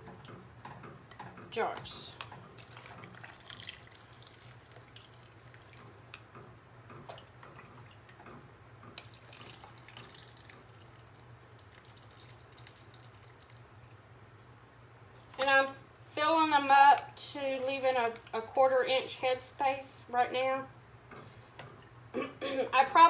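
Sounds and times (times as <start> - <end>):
liquid trickling and dripping: 2.2 - 14.0, 16.7 - 18.7.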